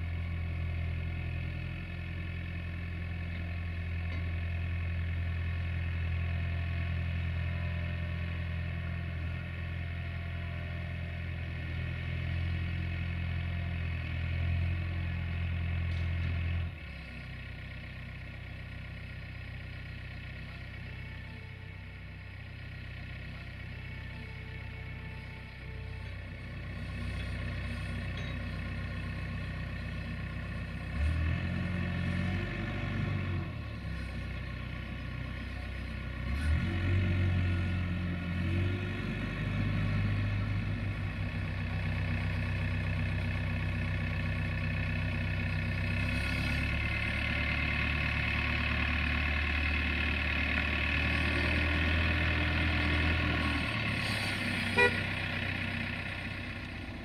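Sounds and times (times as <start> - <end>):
diesel engine revving: 28.8 - 57.0.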